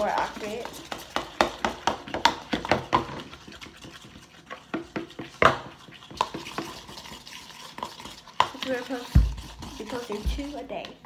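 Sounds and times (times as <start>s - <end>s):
spoon scraping plastic bowl: 0.0s - 11.0s.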